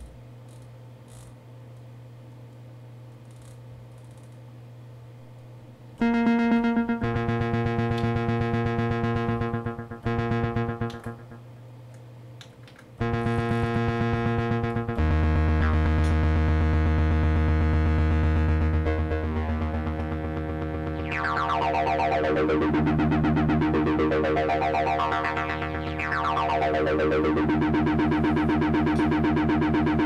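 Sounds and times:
quiet low synth tone: 6.0 - 11.4, 13.0 - 30.0
buzzy synthesizer notes: 6.0 - 11.5, 13.0 - 30.0.

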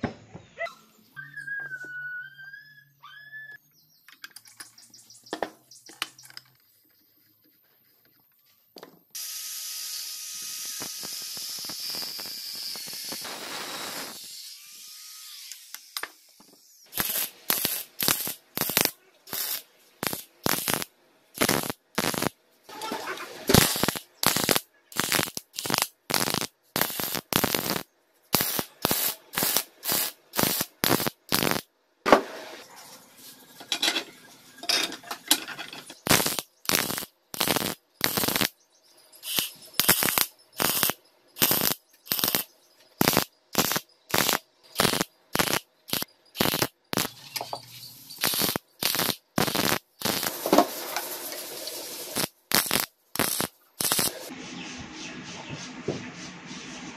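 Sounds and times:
welder bursts: 9.2 - 16.0, 16.9 - 32.3, 36.0 - 38.6, 39.2 - 47.2, 48.2 - 54.3
handling of metal parts: 33.6 - 36.0.

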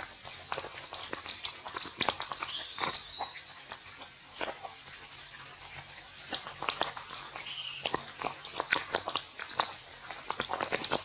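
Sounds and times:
monkey squeak: 2.4 - 3.6, 7.4 - 8.0
wet clicks and smacks: 6.3 - 11.0.

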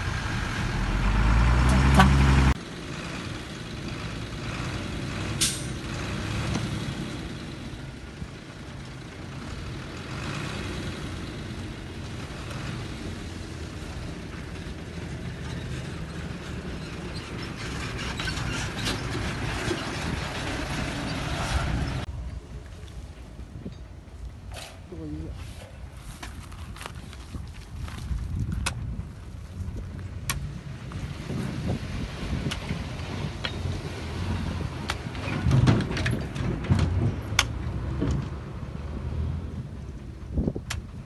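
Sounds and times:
diesel truck engine running: 0.0 - 22.1.

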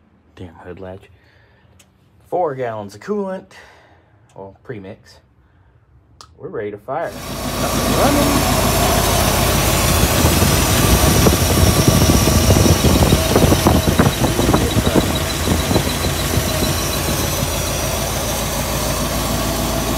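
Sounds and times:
car engine idling unevenly: 7.1 - 19.9.

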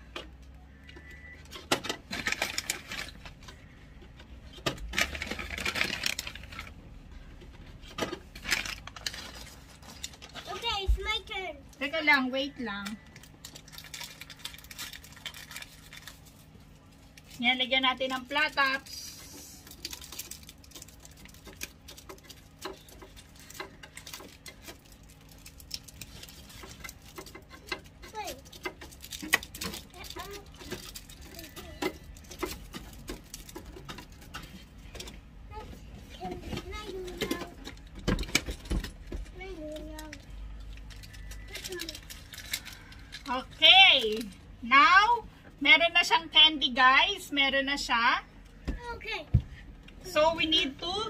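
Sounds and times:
candies clattering on plastic: 0.9 - 6.8, 7.8 - 11.2, 11.8 - 35.1, 36.1 - 44.5
plastic bag crinkling: 4.8 - 6.8, 8.4 - 10.6, 12.9 - 34.3, 39.6 - 44.4.

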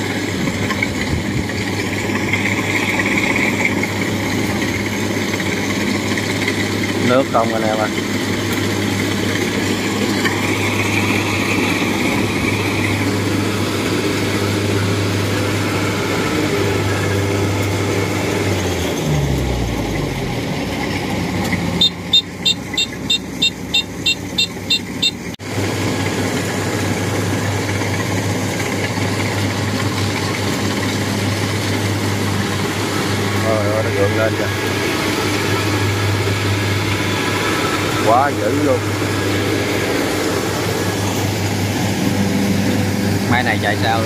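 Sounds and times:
combine harvester diesel engine running: 0.0 - 44.0
quick high beeps: 21.8 - 25.4.

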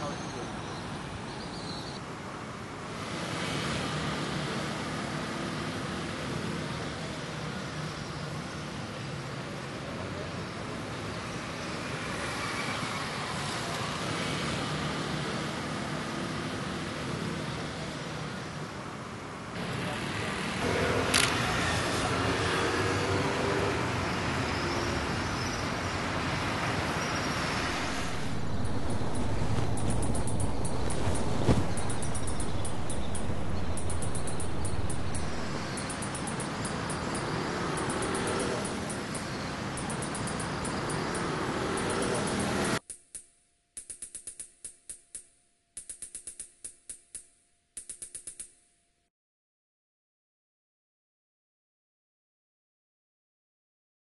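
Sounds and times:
road traffic hiss and rumble: 0.0 - 42.9
quick sharp mechanical clicks: 41.8 - 48.7.

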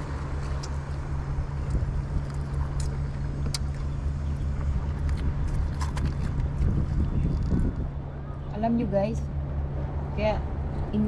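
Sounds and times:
motor running with low drone: 0.0 - 8.5.

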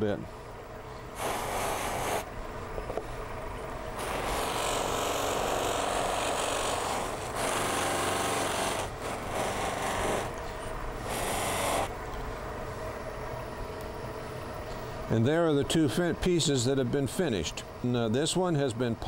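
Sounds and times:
buffing wheel rubbing hiss: 1.2 - 2.2.

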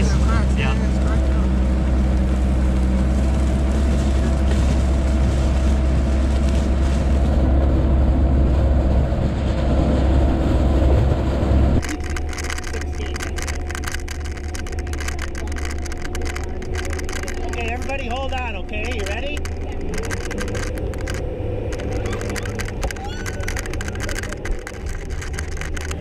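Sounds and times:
diesel engine rumble: 0.0 - 26.0
rapid clicking and rattling: 11.8 - 26.0.

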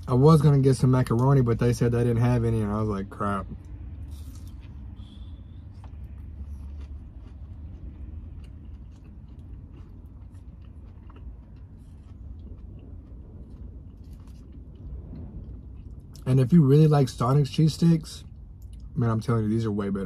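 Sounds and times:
low car cabin hum: 0.0 - 20.0
person chewing food: 3.5 - 16.2.

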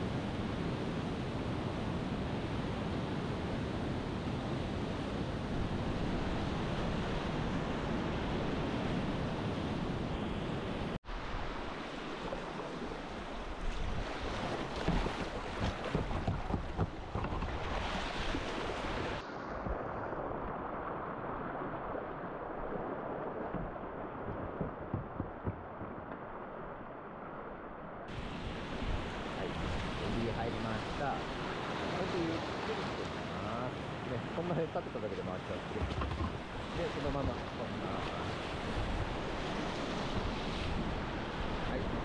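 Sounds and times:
sharp water splashes: 11.8 - 27.3
rushing river whitewater: 17.6 - 42.0
wind buffeting microphone: 35.7 - 42.0.

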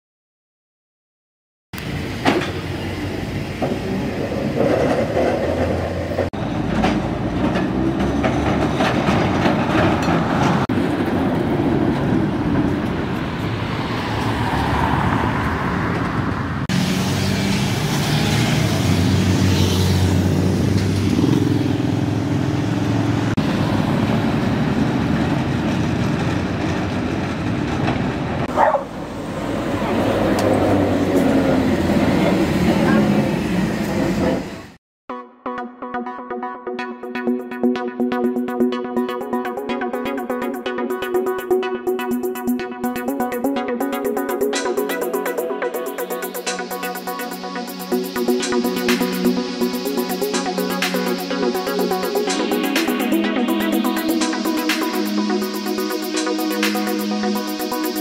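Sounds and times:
tram running past on track: 1.8 - 34.8.

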